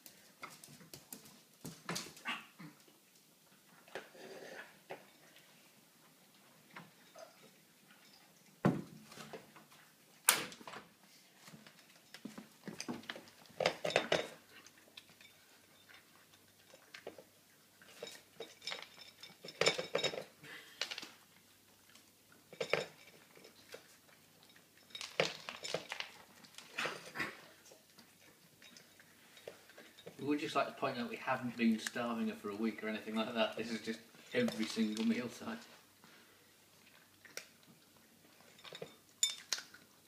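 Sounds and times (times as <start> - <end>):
food bowl clinking and clattering: 11.7 - 21.3, 22.4 - 32.0, 32.7 - 35.7, 38.3 - 40.0.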